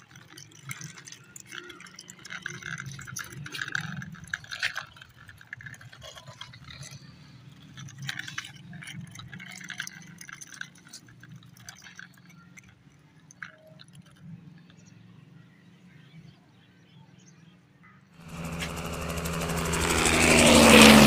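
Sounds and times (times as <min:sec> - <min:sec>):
plastic wheels scraping on concrete: 0:00.0 - 0:12.6.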